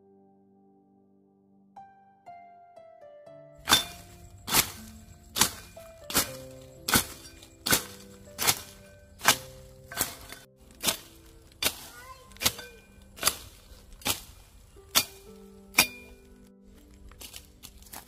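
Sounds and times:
soft background music: 0.0s - 18.0s
blade chopping grass: 3.6s - 16.3s.

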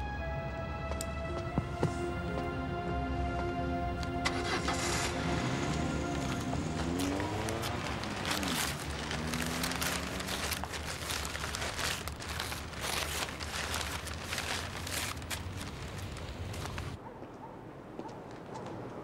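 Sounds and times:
paper wrapping crinkling: 6.0s - 17.0s.

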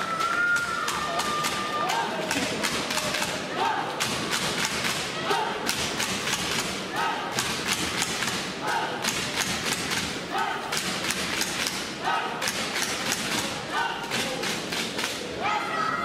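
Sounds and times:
crowd clapping in rhythm: 0.0s - 15.2s
crowd chanting: 6.8s - 9.2s, 12.0s - 12.7s.

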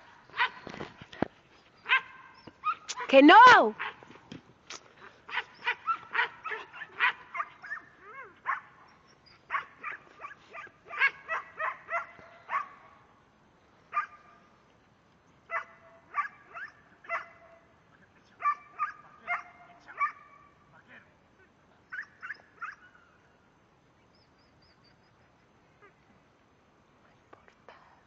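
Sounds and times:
dog barking: 1.9s - 2.8s, 5.3s - 8.7s, 9.5s - 12.9s, 13.9s - 14.3s, 15.5s - 17.6s, 18.4s - 20.4s, 22.0s - 22.9s.

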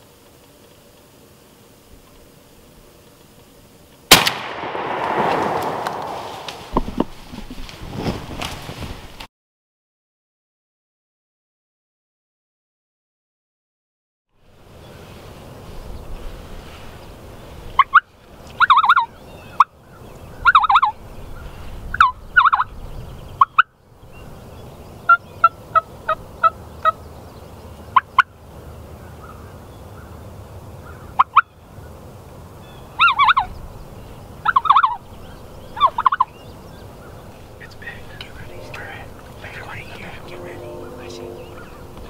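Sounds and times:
sharp turkey calls: 17.8s - 19.7s, 20.4s - 21.0s, 22.0s - 22.7s, 25.1s - 27.0s, 30.9s - 31.5s, 33.0s - 33.5s, 34.4s - 35.0s, 35.8s - 36.4s
turkey yelps: 18.6s - 19.1s, 20.4s - 21.0s, 22.0s - 22.7s, 33.0s - 33.5s, 34.4s - 35.0s, 35.8s - 36.3s
turkeys gobbling: 18.6s - 19.1s, 20.4s - 21.0s, 22.0s - 22.6s, 33.0s - 33.5s, 34.4s - 35.0s, 35.8s - 36.4s.

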